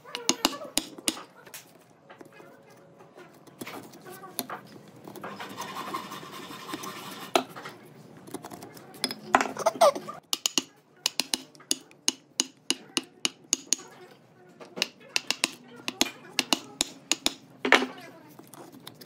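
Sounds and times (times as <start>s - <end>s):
chisel tapping into wood: 0.1s - 1.3s, 10.3s - 13.9s, 14.6s - 17.9s
chisel scraping wood: 3.2s - 13.9s, 14.8s - 19.0s.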